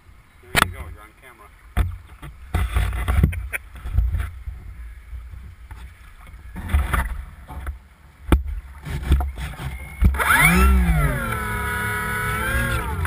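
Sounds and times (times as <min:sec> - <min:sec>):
water lapping against hull: 0:00.6 - 0:10.2.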